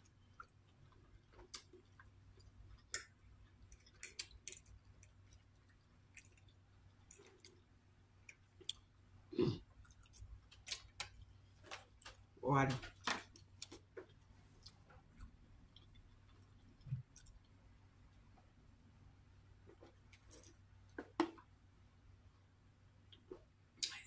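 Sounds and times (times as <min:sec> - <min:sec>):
chewing: 0:00.0 - 0:09.0, 0:09.6 - 0:12.3, 0:13.0 - 0:18.2.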